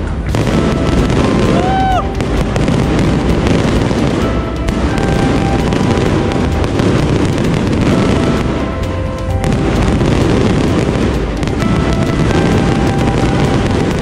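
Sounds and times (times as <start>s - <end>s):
fireworks bursting and crackling: 0.0s - 14.0s.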